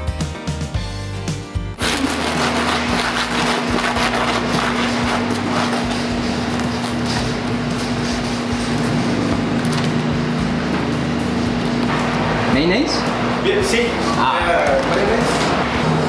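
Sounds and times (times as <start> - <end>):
street traffic noise: 7.2 - 16.0.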